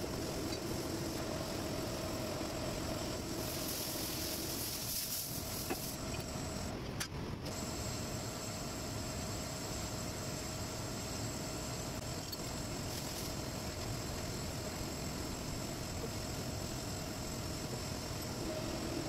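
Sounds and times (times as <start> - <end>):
hiss: 3.3 - 6.0
metal lathe humming and whining: 7.6 - 19.0.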